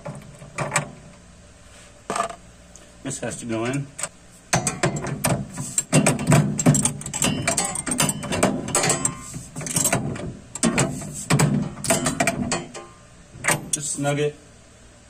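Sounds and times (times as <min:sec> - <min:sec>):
metallic clicking and rattling: 0:04.0 - 0:13.9.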